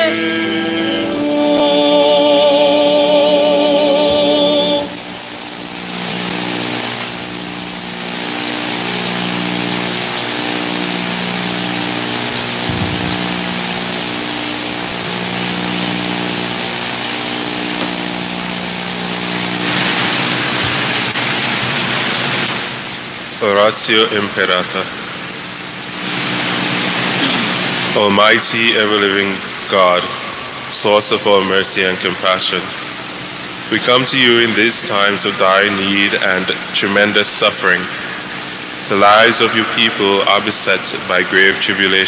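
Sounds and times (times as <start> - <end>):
hymn singing: 0.0 - 6.7, 27.2 - 32.6, 38.9 - 42.0
steady hiss: 0.0 - 42.0.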